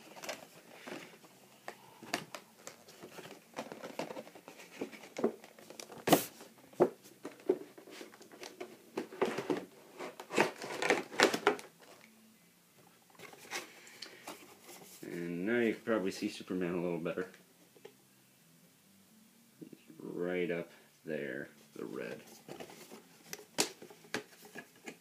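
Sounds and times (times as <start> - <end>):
cardboard packaging rustling: 0.0 - 12.0, 13.1 - 15.2, 21.8 - 25.0.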